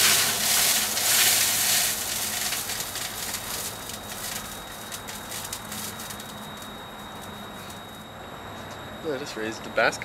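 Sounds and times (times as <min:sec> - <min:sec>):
liquid sizzling and popping: 0:00.0 - 0:08.0.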